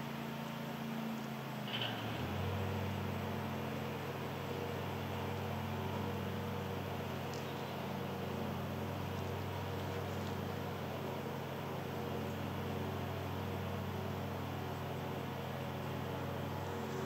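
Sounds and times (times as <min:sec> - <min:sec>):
low mechanical drone: 0:00.0 - 0:17.0
faint tick: 0:07.2 - 0:07.6.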